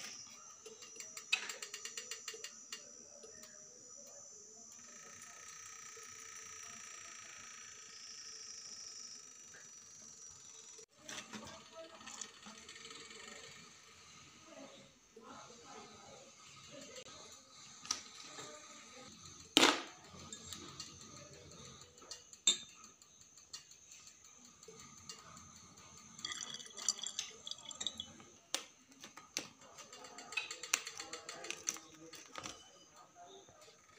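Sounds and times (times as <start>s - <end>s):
drinking glass clinking and knocking: 26.1s - 28.3s
liquid pouring into a bottle: 26.1s - 28.3s.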